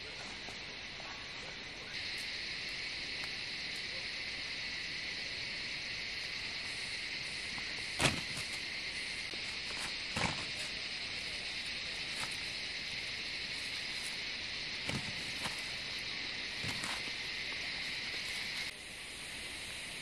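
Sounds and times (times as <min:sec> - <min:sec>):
insects chirring: 0:00.0 - 0:20.0.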